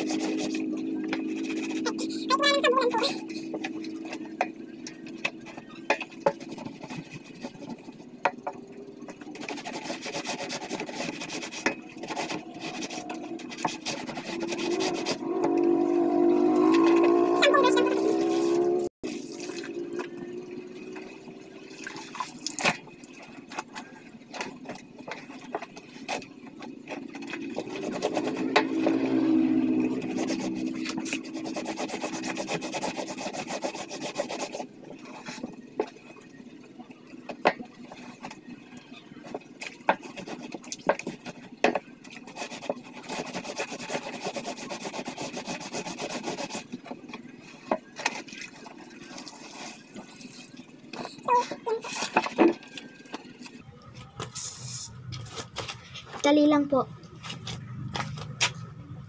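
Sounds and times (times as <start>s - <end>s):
cloth scrubbed against cloth: 0.0s - 3.4s, 9.3s - 15.2s, 27.4s - 35.6s, 42.2s - 46.8s.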